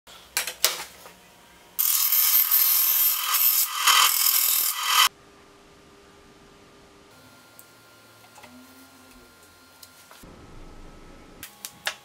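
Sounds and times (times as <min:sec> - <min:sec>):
bandsaw cutting wood: 0:01.8 - 0:05.1.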